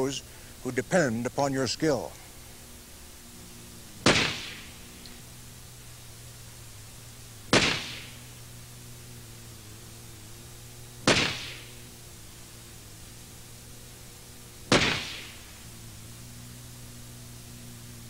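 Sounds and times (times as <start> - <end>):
low hum: 0.0 - 18.0
pistol shots: 4.0 - 4.8, 7.5 - 8.3, 11.0 - 11.8, 14.7 - 15.5.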